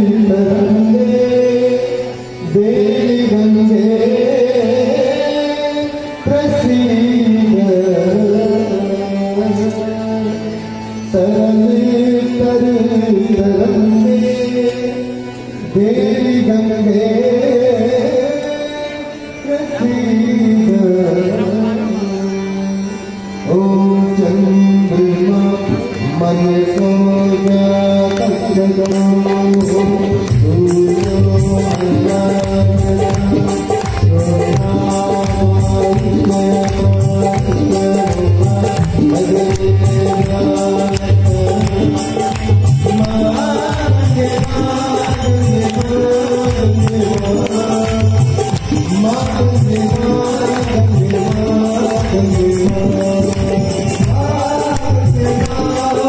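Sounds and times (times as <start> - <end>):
hymn singing with long notes: 0.0 - 56.0
hand drum beat: 30.3 - 56.0.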